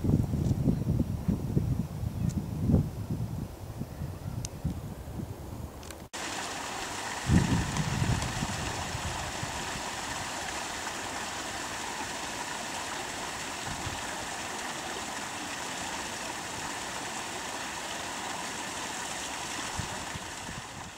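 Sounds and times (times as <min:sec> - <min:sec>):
wind buffeting microphone: 0:00.0 - 0:06.0, 0:06.9 - 0:11.4, 0:12.2 - 0:14.8, 0:19.4 - 0:20.9
running water rushing: 0:06.2 - 0:20.9.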